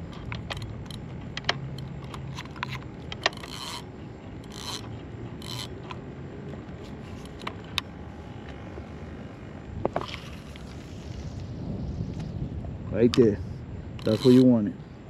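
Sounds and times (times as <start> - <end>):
fishing reel rasps: 0.0 - 6.0, 14.0 - 14.8.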